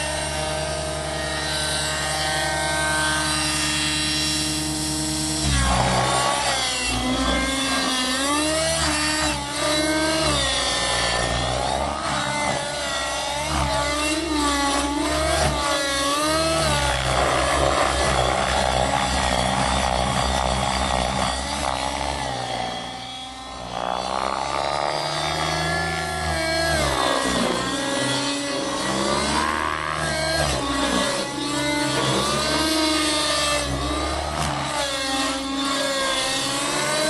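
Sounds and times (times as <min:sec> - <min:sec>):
model helicopter engine and rotor: 0:00.0 - 0:37.0.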